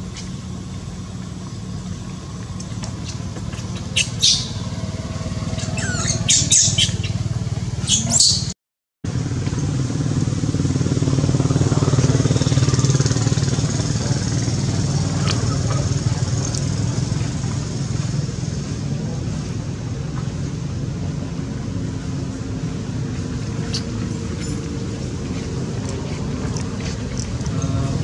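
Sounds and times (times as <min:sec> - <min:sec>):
low engine hum: 0:00.0 - 0:28.0
high-pitched squeals and chirps: 0:02.6 - 0:08.6.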